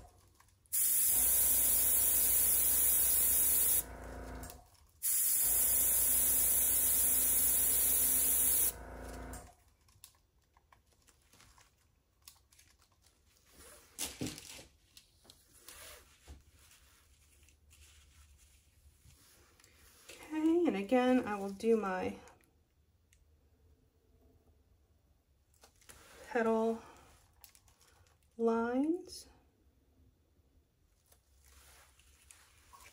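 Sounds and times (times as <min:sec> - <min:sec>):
air blower hissing: 0:00.8 - 0:09.4.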